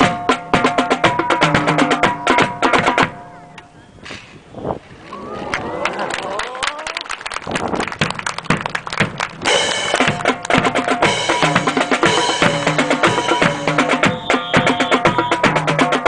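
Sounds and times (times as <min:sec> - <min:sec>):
snare and bass drum beat: 0:00.0 - 0:03.2, 0:08.0 - 0:16.0
melody notes: 0:09.5 - 0:16.0.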